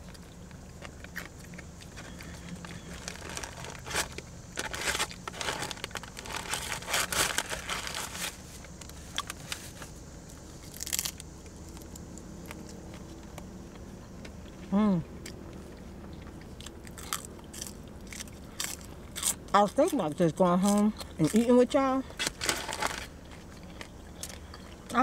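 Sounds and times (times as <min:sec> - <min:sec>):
food packaging crinkling: 0:00.0 - 0:12.0, 0:22.1 - 0:24.4.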